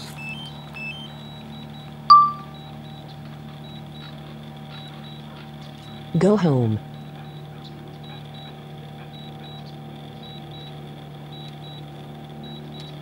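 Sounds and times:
remote controller short high beeps: 2.1 - 2.7.

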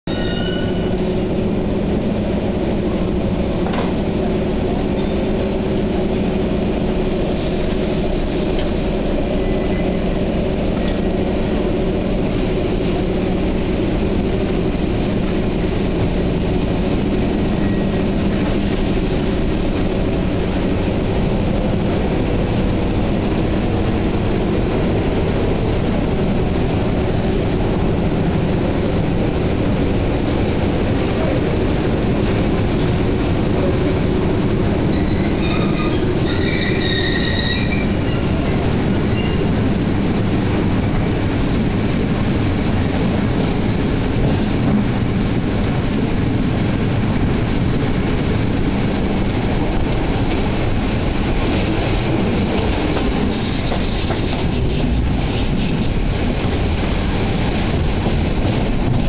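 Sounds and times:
faint high squeaks: 0.1 - 0.9
train running gear drone: 0.1 - 59.0.

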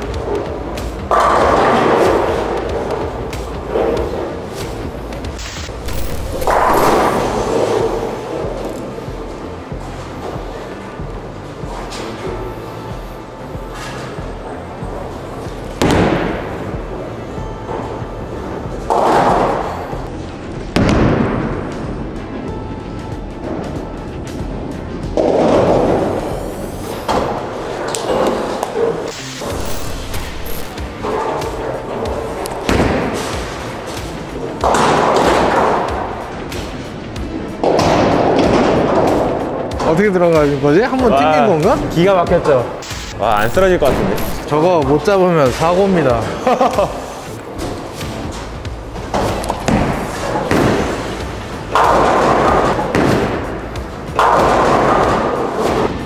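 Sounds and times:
loud burst of noise: 5.4 - 7.5, 29.1 - 30.8, 42.8 - 44.5
bowling ball thud and roll: 15.8 - 16.7, 20.6 - 22.1, 25.0 - 39.9, 47.5 - 56.0.

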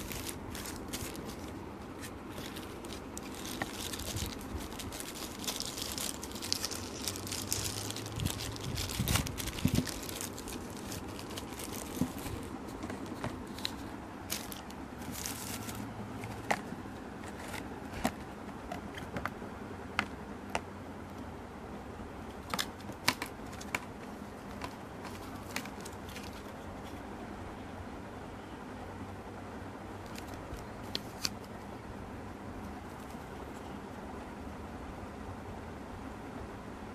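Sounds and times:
plastic bags crinkling: 0.0 - 18.2
plastic items clicking and tapping: 22.4 - 26.5.

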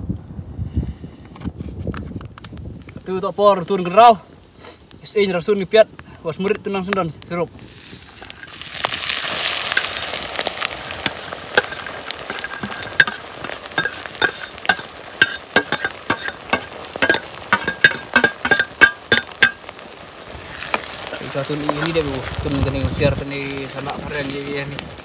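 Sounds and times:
food sizzling in hot oil: 7.5 - 25.0
utensil knocking and scraping pan: 11.0 - 19.6.

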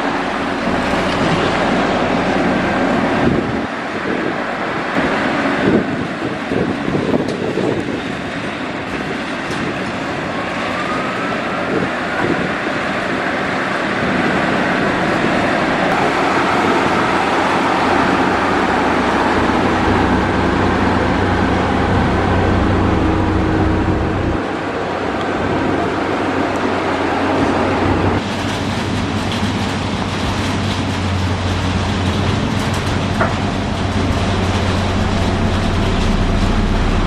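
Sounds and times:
diesel engine under load: 0.0 - 37.0.

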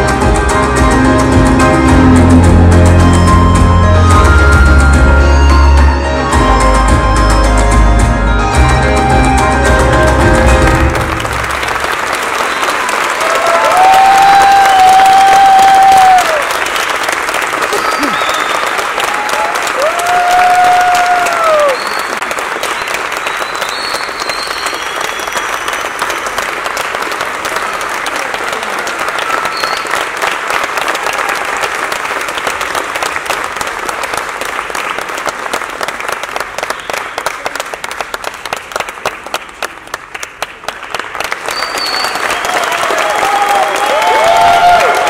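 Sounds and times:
audience applauding: 8.8 - 45.0
person cheering: 13.2 - 16.5, 17.7 - 18.3, 19.0 - 21.9, 42.3 - 45.0.

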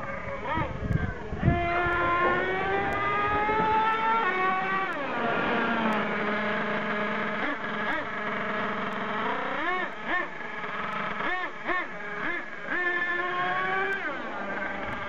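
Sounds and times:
toy truck engine whining: 0.0 - 15.0.

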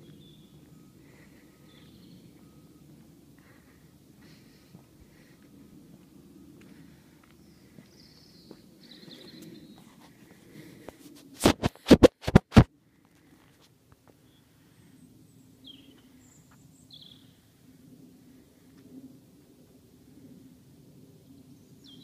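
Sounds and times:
high chirping calls: 0.0 - 2.6
low steady hum: 0.0 - 22.0.

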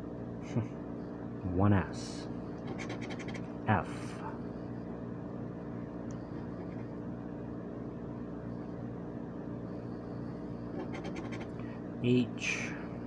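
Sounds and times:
low hum: 0.0 - 13.0
blade scratching ticket: 2.6 - 3.4, 10.8 - 11.5.

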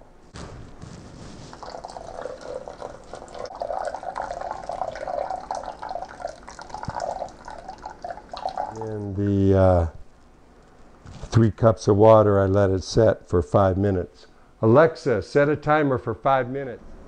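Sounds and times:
water pouring onto wet coffee: 1.4 - 9.3.

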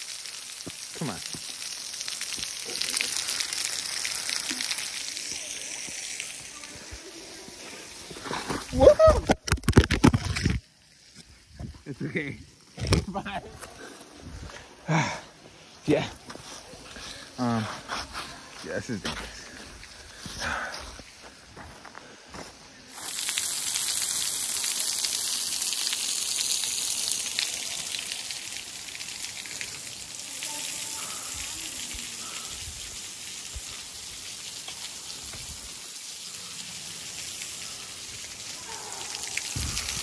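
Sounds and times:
running water rushing: 0.0 - 21.4, 22.8 - 40.0.

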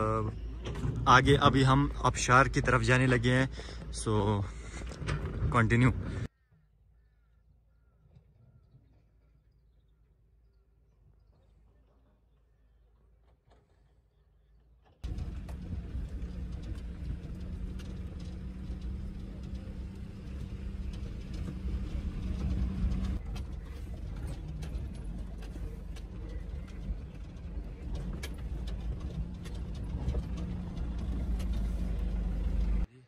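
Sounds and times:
car engine rumble: 0.0 - 6.3, 12.6 - 33.0
car rattling over stones: 15.0 - 32.9.

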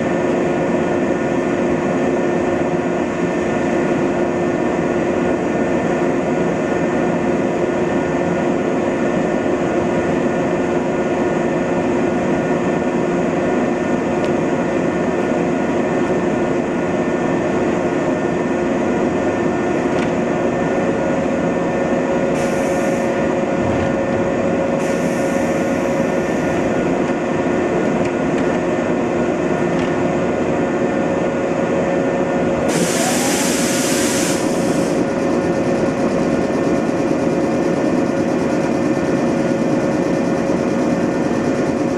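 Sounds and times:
train equipment humming: 0.0 - 41.9
short air hisses: 22.3 - 23.2, 24.8 - 25.9, 32.7 - 35.0.

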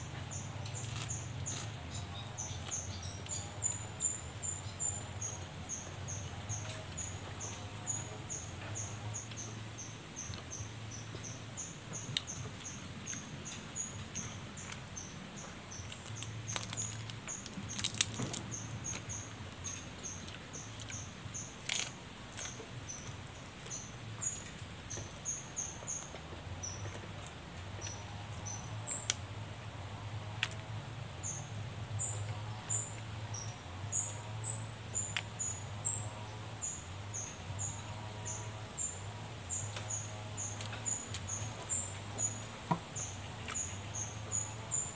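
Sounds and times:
chewing: 0.4 - 3.9, 19.7 - 23.8
sharp crackles: 15.8 - 19.1, 19.7 - 23.8.

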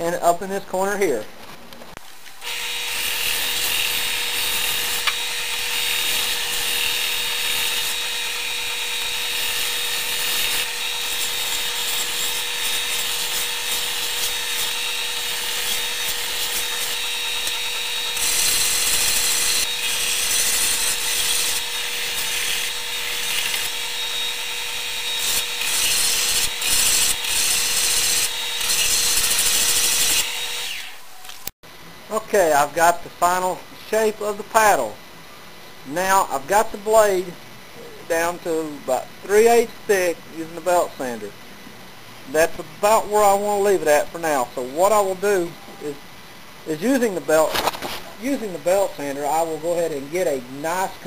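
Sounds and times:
belt sander running: 2.4 - 31.0
wood hissing on sanding belt: 2.4 - 31.2.

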